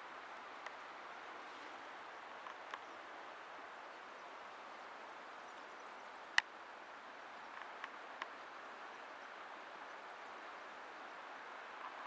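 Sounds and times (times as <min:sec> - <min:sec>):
faint ticks: 0:00.6 - 0:00.8, 0:02.4 - 0:03.0, 0:06.3 - 0:06.6, 0:07.4 - 0:08.4.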